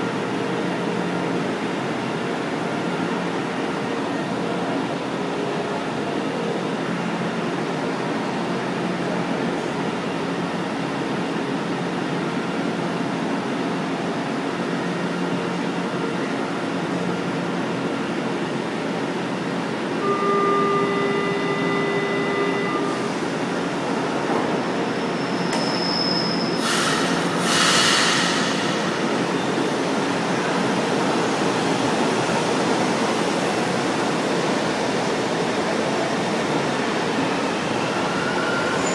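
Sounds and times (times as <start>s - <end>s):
metro train wheels rumbling on rail: 0.0s - 20.1s, 21.2s - 38.9s
pitched whine: 20.0s - 23.4s
high wheel squeals: 25.0s - 27.0s, 37.9s - 38.9s.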